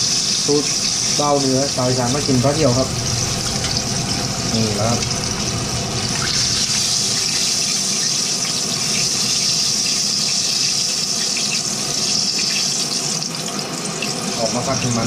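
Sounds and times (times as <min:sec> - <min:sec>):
chicken sizzling in hot oil: 0:00.0 - 0:15.0.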